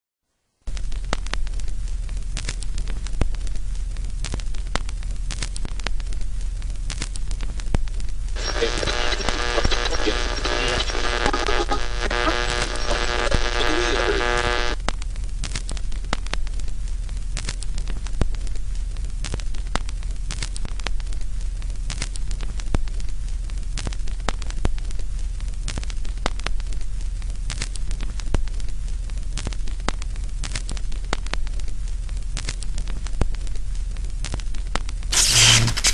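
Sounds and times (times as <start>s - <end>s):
static clicks and pops: 0.7s - 35.9s
steady hiss: 8.2s - 14.8s, 35.0s - 35.9s
low hum: 8.4s - 14.8s.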